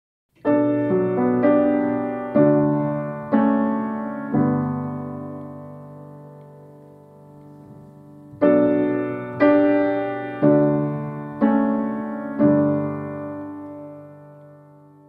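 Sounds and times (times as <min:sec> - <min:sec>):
piano playing slow chords: 0:00.3 - 0:15.0.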